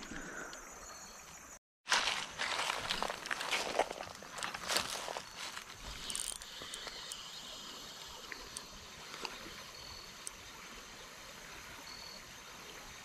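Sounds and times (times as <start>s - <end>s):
creek water over gravel: 0.0s - 13.0s
small clicks: 5.9s - 7.3s.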